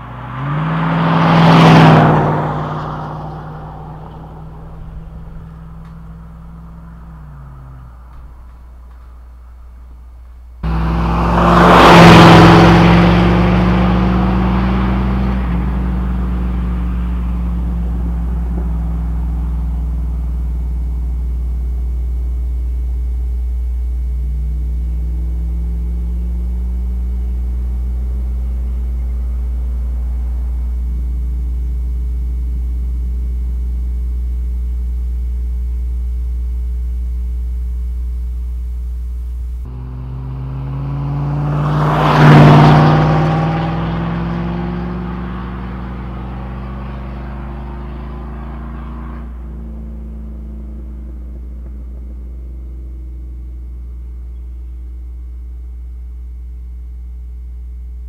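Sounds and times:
truck driving past: 0.0s - 21.4s, 39.6s - 54.3s
truck exhaust rumble: 0.0s - 58.0s.

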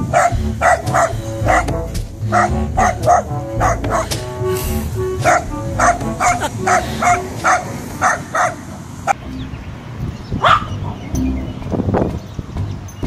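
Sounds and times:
background music: 0.0s - 13.0s
small dog barking: 0.1s - 1.6s, 2.3s - 4.0s, 5.2s - 8.6s, 10.4s - 10.8s.

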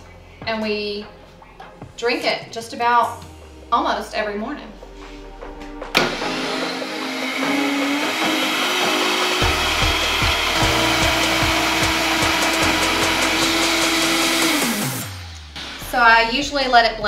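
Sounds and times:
blender running at high speed: 6.0s - 15.4s.

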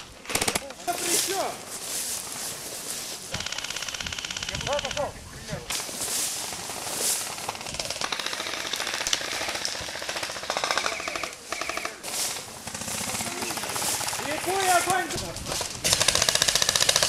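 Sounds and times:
airsoft guns firing rapid bursts: 0.0s - 1.6s, 3.3s - 5.1s, 5.7s - 17.0s
grass rustling against microphone: 0.0s - 17.0s.

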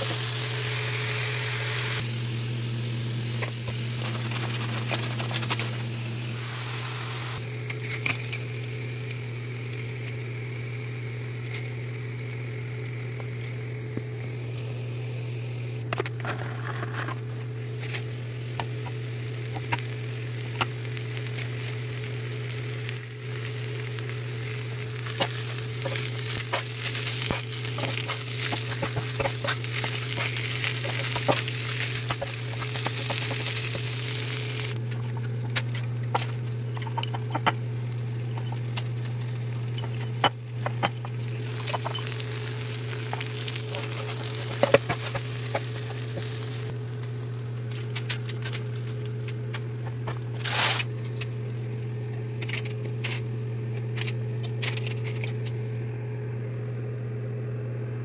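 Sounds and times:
food sizzling on griddle: 0.0s - 14.7s, 17.5s - 52.1s
low hum: 0.1s - 58.0s
spatula scraping griddle: 25.1s - 37.6s, 43.0s - 46.6s, 49.9s - 50.9s.

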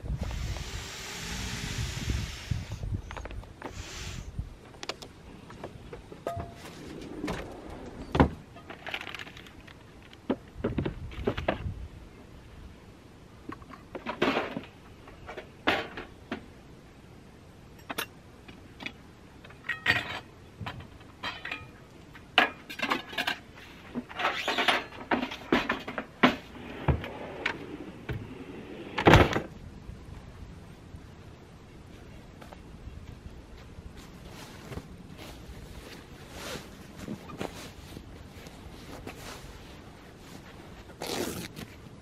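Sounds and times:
camping gear knocks and rustles: 34.0s - 41.9s.

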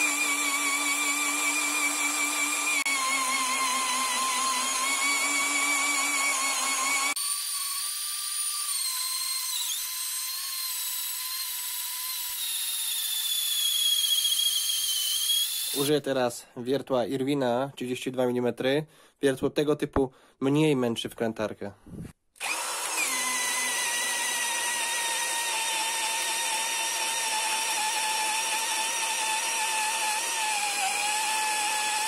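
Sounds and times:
cordless drill boring into wood: 0.0s - 15.9s, 22.4s - 32.0s.

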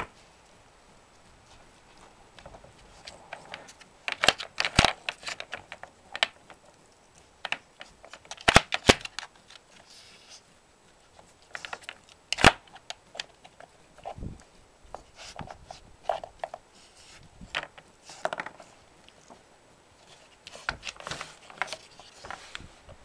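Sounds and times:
wooden puzzle board clattering: 17.5s - 18.7s.

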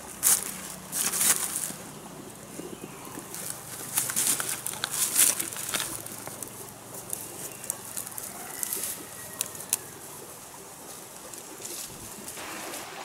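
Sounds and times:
dry leaves and twigs rustling: 0.0s - 12.9s
twigs snapping: 3.2s - 9.9s.

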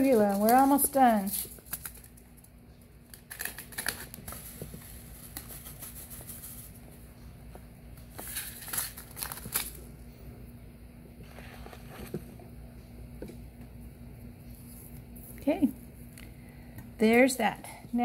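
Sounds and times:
paper packet crinkling: 0.0s - 6.8s, 8.1s - 9.9s.

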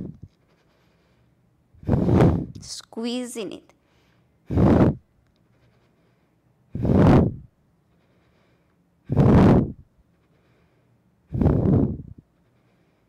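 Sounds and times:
woman exhaling forcefully: 1.8s - 2.5s, 4.5s - 5.0s, 6.7s - 7.4s, 9.1s - 9.8s, 11.3s - 12.1s.

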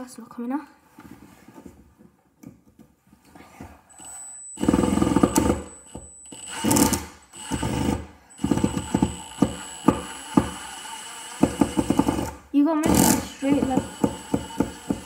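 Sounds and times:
thin high whine: 3.8s - 9.9s
impact driver hammering screw: 4.0s - 15.0s.

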